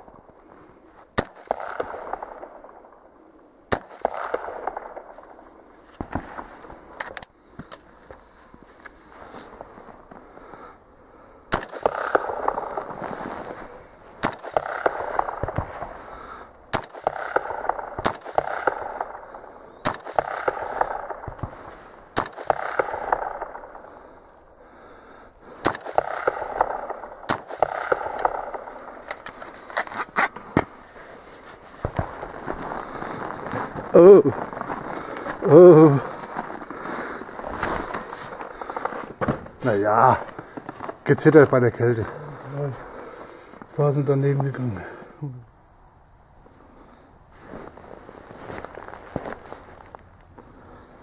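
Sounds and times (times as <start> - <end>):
rifle gunshots with echo: 1.2 - 3.0, 3.7 - 5.4, 11.5 - 13.2, 14.1 - 24.4, 25.4 - 29.2.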